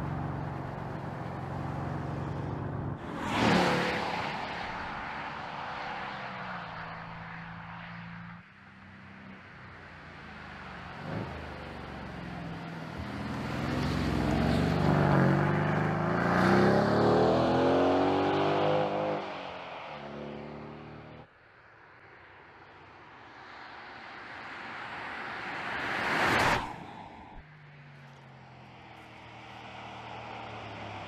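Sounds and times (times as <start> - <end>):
car approaching: 0.0 - 8.4, 9.1 - 21.3, 24.5 - 31.0
car engine accelerating past: 13.0 - 21.2.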